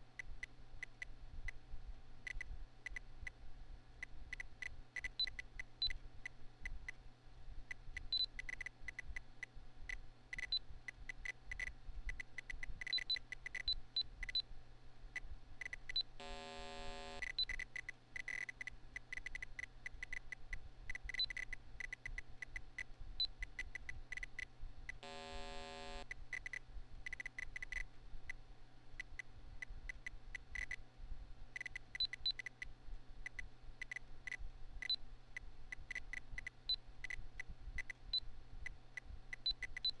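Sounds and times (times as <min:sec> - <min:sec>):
computer fan hum: 0:00.0 - 0:35.8
short high computer beeps: 0:16.0 - 0:17.5, 0:25.0 - 0:26.0.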